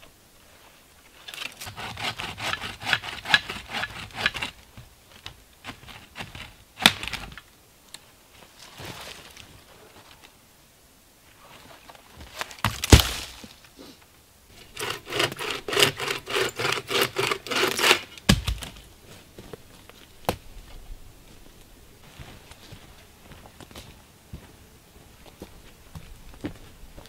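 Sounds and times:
wood cracking: 11.9 - 13.7, 14.6 - 18.9
dry wood snapping: 12.4 - 13.6.

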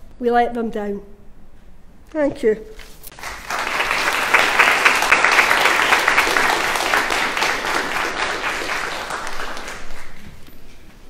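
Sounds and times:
audience applauding: 3.1 - 10.4.

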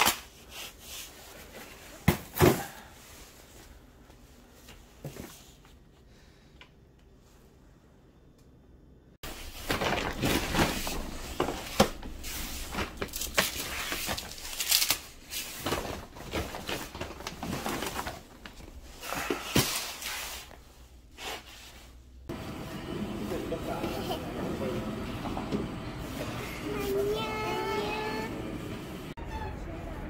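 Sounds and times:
packaging rustling and crinkling: 9.3 - 20.2.

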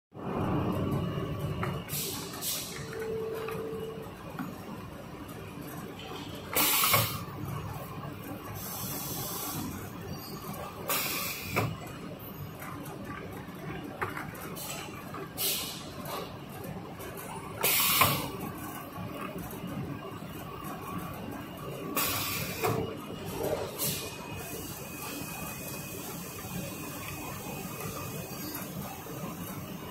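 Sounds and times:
machine hum: 0.2 - 6.6
printing machine running: 0.2 - 29.9
pneumatic hisses: 6.6 - 7.2, 17.6 - 18.3.

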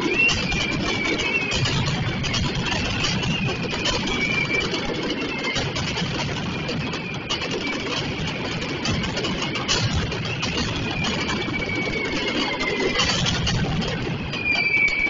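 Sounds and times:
thin whistling tone: 0.0 - 5.7, 10.3 - 15.0
firecrackers going off: 0.0 - 15.0.

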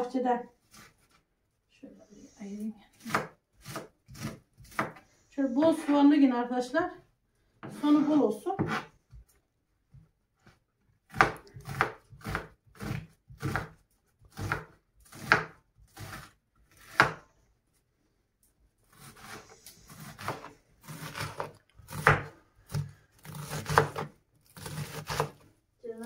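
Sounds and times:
knife chopping on wooden board: 2.9 - 5.0, 8.6 - 8.9, 11.1 - 17.2, 18.9 - 25.4.

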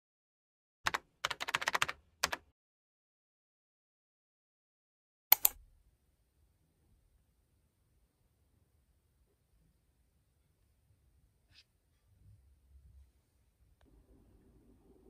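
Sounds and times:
computer keyboard keystrokes: 0.9 - 2.4, 5.3 - 5.6.

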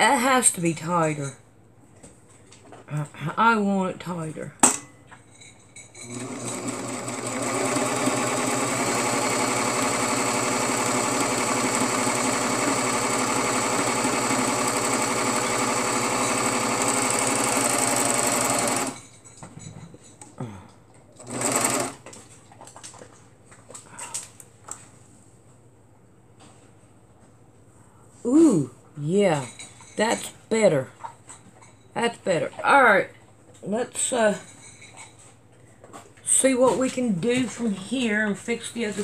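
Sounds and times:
overlock machine stitching: 6.0 - 19.0, 21.2 - 22.0.

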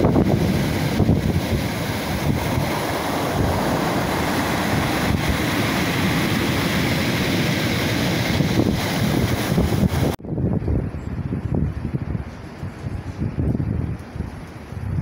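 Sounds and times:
surf breaking on pebble beach: 0.0 - 10.2
wind buffeting microphone: 0.0 - 15.0.

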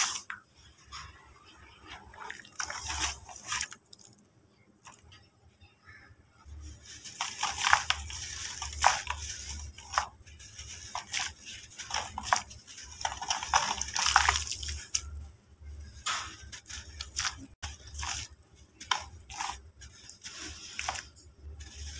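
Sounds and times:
wet dirt squishing: 2.1 - 4.2, 7.0 - 15.2
dry dirt crunching: 6.5 - 15.2.

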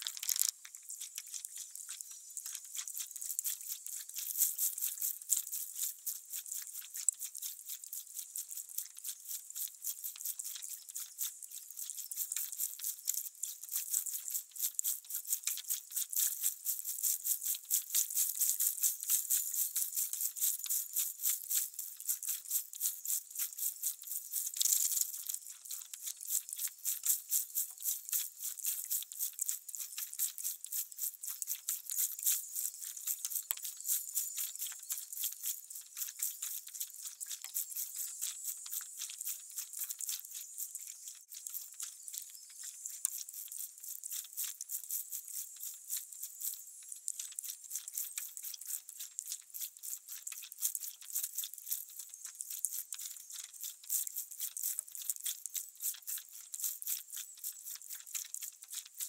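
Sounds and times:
insects chirping: 0.0 - 5.0, 32.0 - 44.3.

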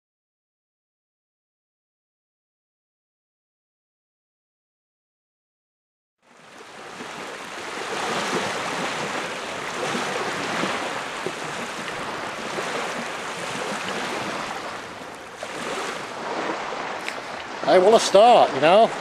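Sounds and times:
lake waves lapping on shore: 6.2 - 19.0.

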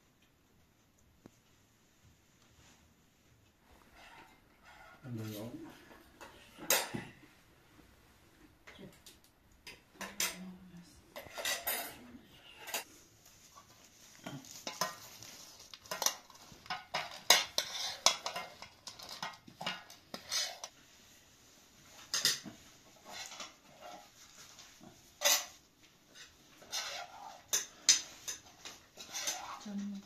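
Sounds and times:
metal spoon scraping a pan: 3.8 - 5.4, 11.1 - 13.0, 13.6 - 20.8, 21.9 - 30.0
metal spoon clinking on plates: 6.2 - 7.2, 10.0 - 10.5, 11.2 - 12.9, 15.9 - 20.7, 25.2 - 25.6.

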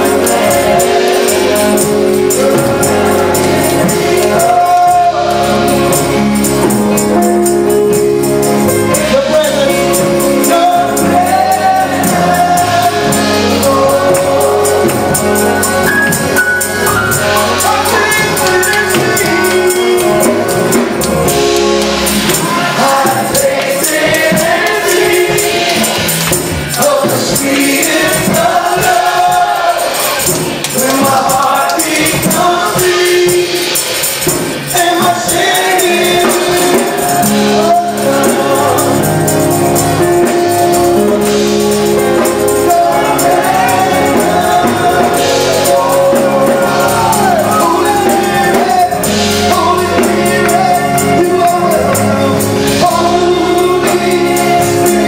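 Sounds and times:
man singing into a microphone: 0.0 - 16.4, 17.1 - 21.4, 22.4 - 25.9, 26.7 - 55.0
drum kit: 0.0 - 55.0
group of voices singing: 0.0 - 55.0
high jingling beat: 0.0 - 55.0.

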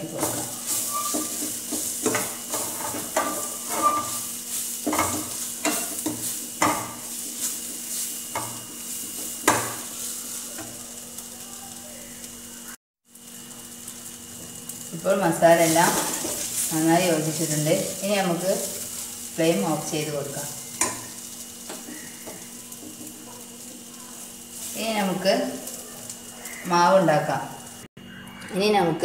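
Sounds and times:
masala sizzling in pan: 0.0 - 28.0
spoon scraping steel pan: 0.2 - 4.3.

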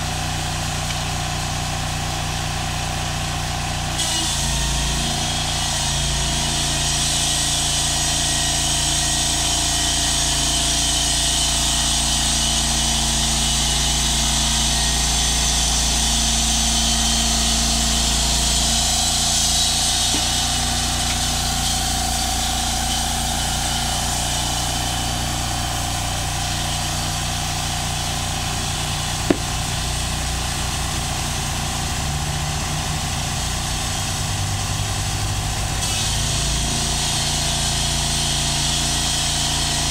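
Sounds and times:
sawmill engine running: 0.0 - 35.2
band blade sawing timber: 15.6 - 30.1
sharp knock: 29.3 - 29.7.

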